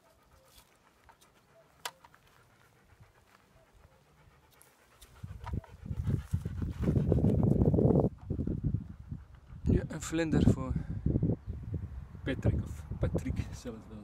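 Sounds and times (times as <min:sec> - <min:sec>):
wind buffeting microphone: 0:04.9 - 0:14.0.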